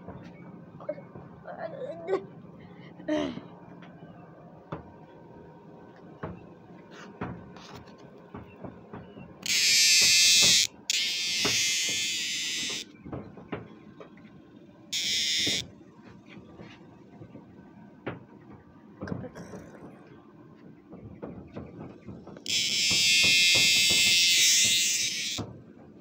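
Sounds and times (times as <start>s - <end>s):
cicada buzzing loudly: 9.4s - 12.9s, 15.0s - 15.7s, 22.5s - 25.5s.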